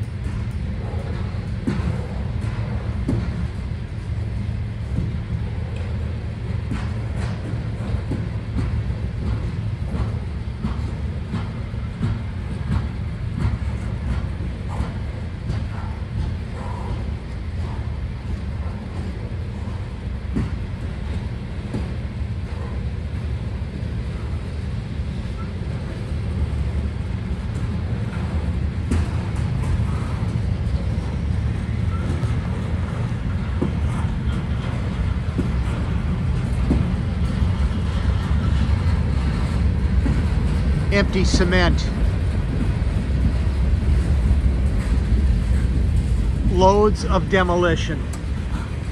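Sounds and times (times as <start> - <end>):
steel wheels rumbling on rail: 0.0 - 48.9.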